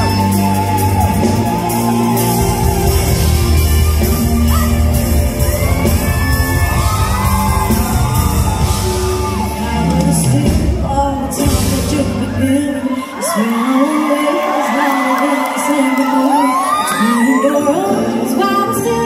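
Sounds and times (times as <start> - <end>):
live band playing: 0.0 - 13.4
woman singing into microphone: 9.3 - 19.0.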